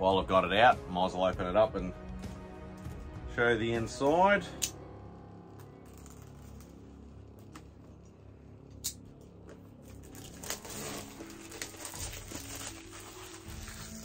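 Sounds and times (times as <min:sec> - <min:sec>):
plastic wrap crinkling: 0:09.7 - 0:14.0.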